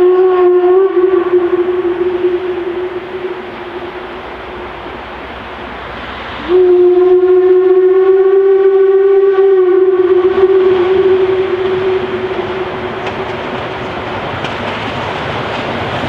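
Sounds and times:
steam whistle blast: 0:00.0 - 0:05.0, 0:06.2 - 0:13.8
approaching locomotive noise: 0:00.0 - 0:16.0.

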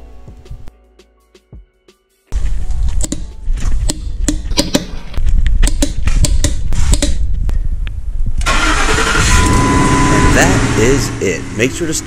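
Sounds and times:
loud steady noise: 0:08.5 - 0:12.0.

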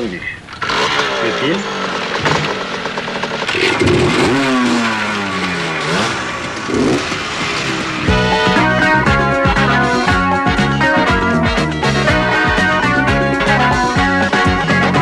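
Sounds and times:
motorcycle engines revving past: 0:00.6 - 0:08.9
music with a steady beat: 0:08.1 - 0:15.0.

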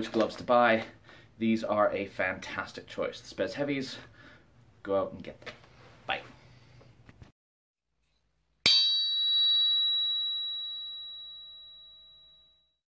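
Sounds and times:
metallic strike ringing: 0:08.6 - 0:12.2.

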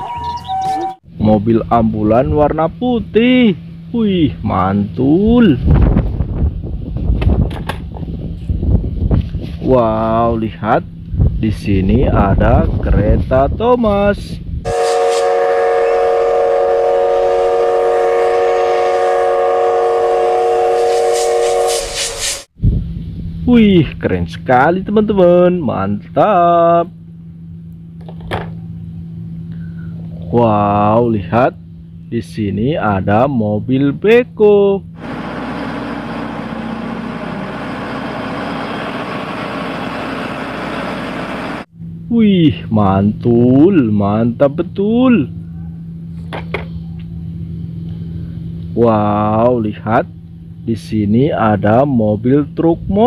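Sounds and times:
steam hissing: 0:14.7 - 0:16.3, 0:20.6 - 0:22.5
steam locomotive whistle blast: 0:14.7 - 0:22.5
diesel engine running: 0:34.8 - 0:42.1.

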